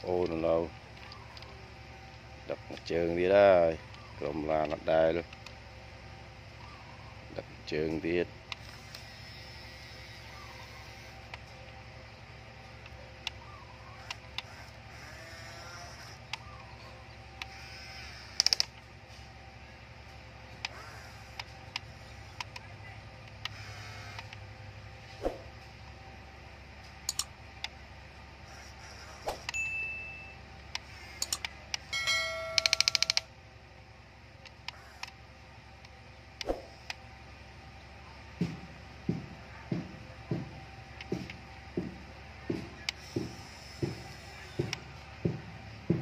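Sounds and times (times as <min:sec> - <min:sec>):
small electric motors whining: 0:00.0 - 0:37.2, 0:40.2 - 0:46.0
sharp clicks: 0:14.0 - 0:18.9, 0:20.5 - 0:24.4, 0:27.0 - 0:27.8, 0:30.7 - 0:33.3
bell chime ringing: 0:29.5 - 0:30.5, 0:31.9 - 0:33.3.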